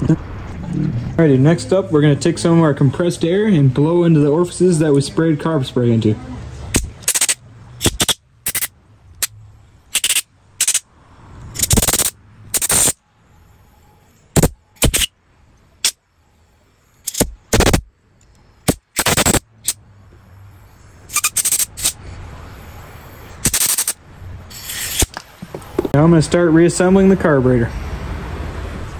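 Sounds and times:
compressed air blow gun bursts: 6.8s - 8.7s, 9.9s - 10.8s, 11.6s - 13.0s, 14.4s - 15.1s, 17.1s - 17.8s, 18.6s - 19.8s, 21.1s - 22.0s, 23.4s - 25.2s.

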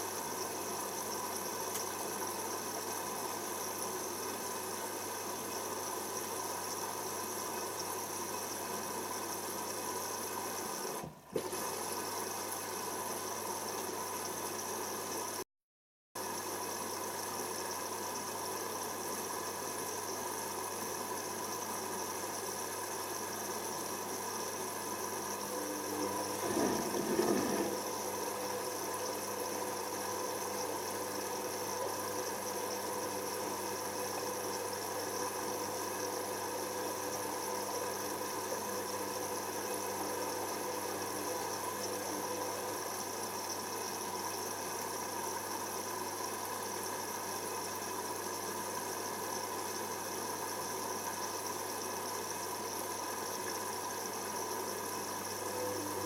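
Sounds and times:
washing machine drum turning: 26.2s - 28.0s.

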